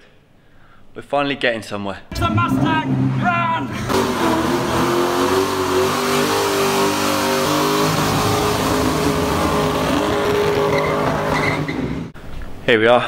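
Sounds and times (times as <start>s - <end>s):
car engine at high revs: 2.1s - 12.2s.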